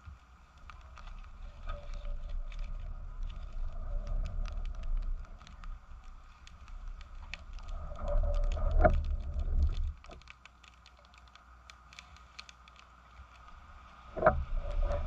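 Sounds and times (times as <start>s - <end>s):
twig fire crackling and popping: 0.0s - 15.0s
low rumble: 0.7s - 10.1s, 13.6s - 15.0s.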